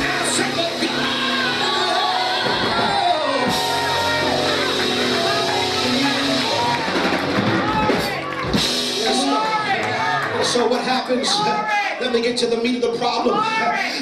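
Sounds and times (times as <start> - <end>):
voices singing and shouting: 0.0 - 7.1
live church music: 0.0 - 14.0.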